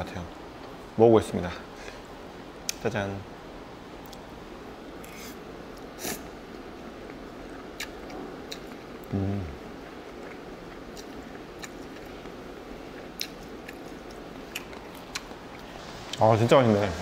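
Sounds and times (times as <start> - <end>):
wet mouth clicks: 10.9 - 12.1.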